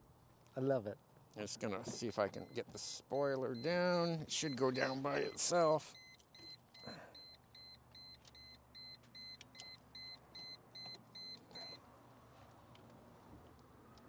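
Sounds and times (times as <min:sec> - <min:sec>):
car warning chime beeping: 0:02.3 - 0:11.8.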